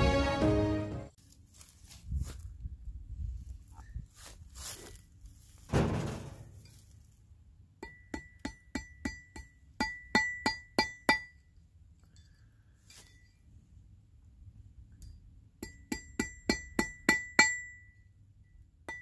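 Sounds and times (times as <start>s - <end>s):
rustling: 1.2s - 7.3s
hammer striking metal rod: 7.8s - 11.5s, 15.0s - 18.0s.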